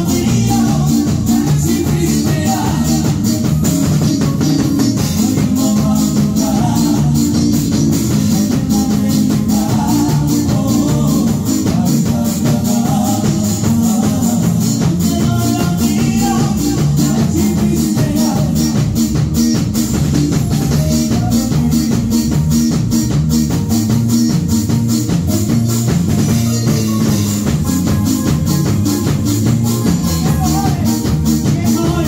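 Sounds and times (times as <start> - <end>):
man singing into microphone: 0.0 - 19.2, 20.4 - 22.3, 29.7 - 32.0
live band playing: 0.0 - 32.0.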